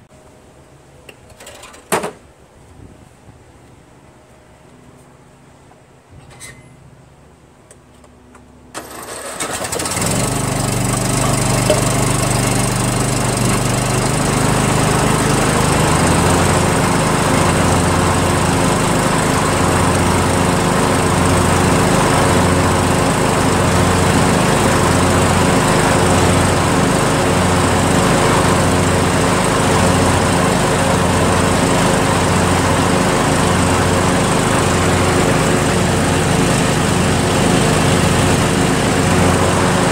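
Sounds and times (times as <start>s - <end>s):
lawn tractor engine running: 8.4s - 39.9s.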